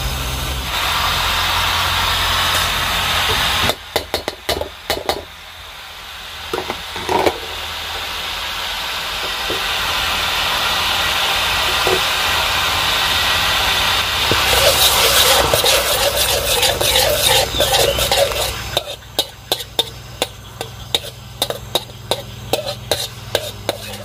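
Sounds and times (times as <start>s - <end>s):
food sizzling in butter: 0.1s - 24.0s
metal spatula scraping a wok: 14.2s - 24.0s.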